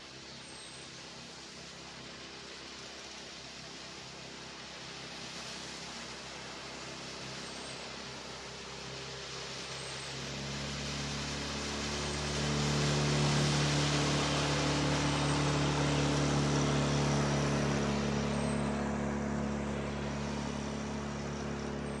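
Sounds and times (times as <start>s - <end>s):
outboard motor boat passing: 0.0s - 22.0s.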